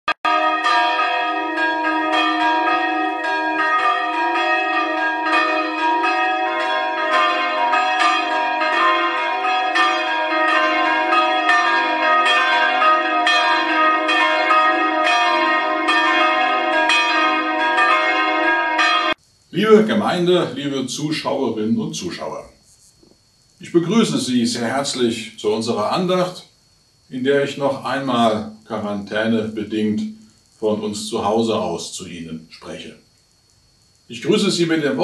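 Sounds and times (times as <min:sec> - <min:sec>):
deep bell ringing: 0:00.3 - 0:19.2
church bells pealing: 0:00.3 - 0:20.4.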